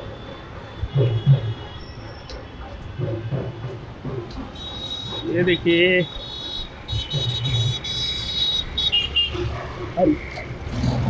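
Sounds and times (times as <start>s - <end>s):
car engines: 0.0s - 11.0s
motorbike engines: 0.0s - 11.0s
voices of passers-by: 0.0s - 11.0s.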